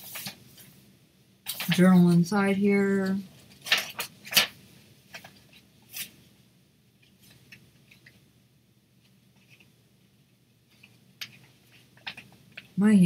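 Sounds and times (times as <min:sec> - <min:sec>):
paper rustling and scratching: 0:00.0 - 0:00.7, 0:01.4 - 0:02.2, 0:03.1 - 0:06.2, 0:09.0 - 0:09.7, 0:10.7 - 0:12.8.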